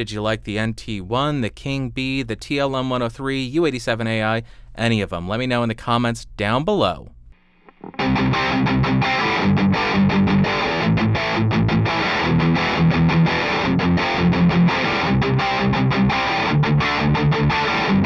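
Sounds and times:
electric guitar strumming chords: 7.6s - 18.0s.

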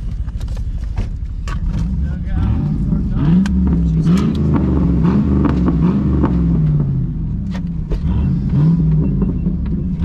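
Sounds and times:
truck engine revving: 1.9s - 10.0s.

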